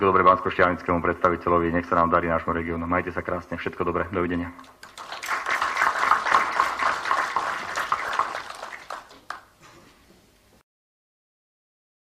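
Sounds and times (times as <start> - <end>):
audience applause: 4.7 - 9.6.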